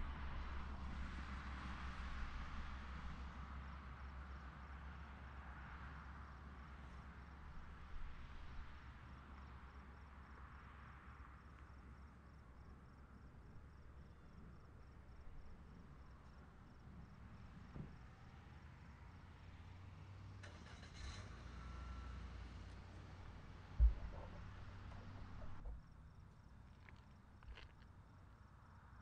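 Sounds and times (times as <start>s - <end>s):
distant cars passing: 0.0s - 29.0s
cricket chirping: 3.5s - 20.0s, 23.8s - 29.0s
brief knock: 23.8s - 25.8s.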